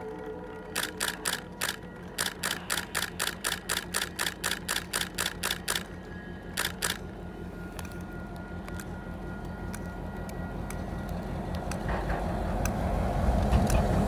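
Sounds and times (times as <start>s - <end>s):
camera shutter clicking: 0.8s - 5.9s, 6.6s - 7.0s.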